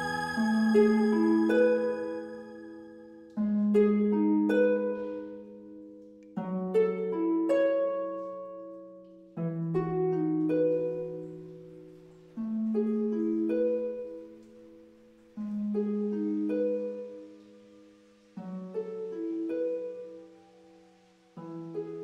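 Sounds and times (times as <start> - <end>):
slow plucked chords: 0.0 - 5.4.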